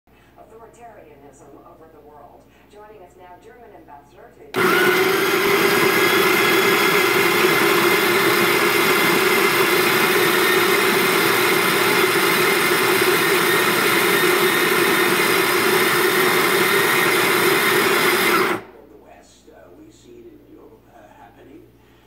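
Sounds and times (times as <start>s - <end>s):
coffee grinder motor whirring: 4.6s - 18.7s.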